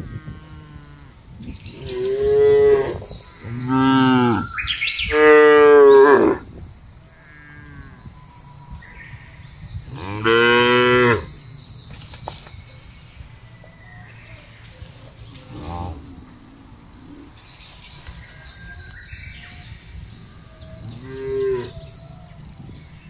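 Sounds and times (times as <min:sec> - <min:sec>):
distant cow mooing: 0:20.6 - 0:21.8.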